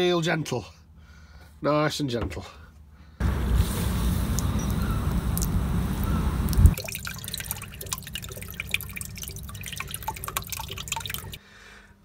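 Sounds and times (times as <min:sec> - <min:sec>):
water dripping and trickling: 0:04.2 - 0:11.4
water tap rushing: 0:04.3 - 0:11.4.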